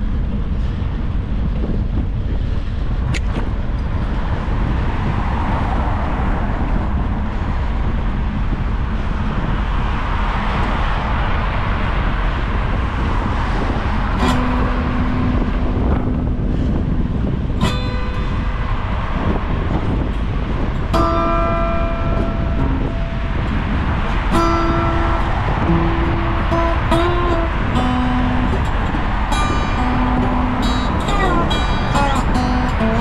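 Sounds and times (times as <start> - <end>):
city traffic: 0.0 - 33.0
wind rumble on microphone: 0.0 - 33.0.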